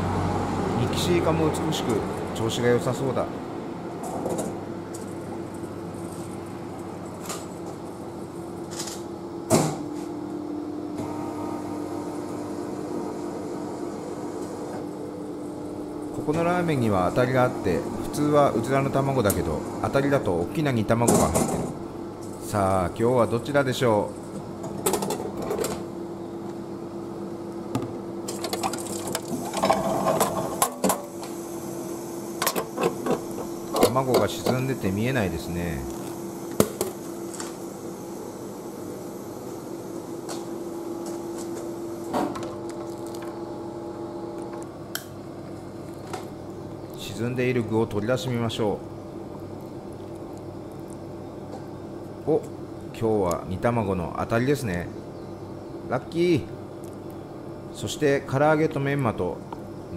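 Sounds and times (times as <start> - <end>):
vending machine running: 0.0 - 9.9, 10.9 - 54.6
bowl scraping and clunking: 28.4 - 30.8.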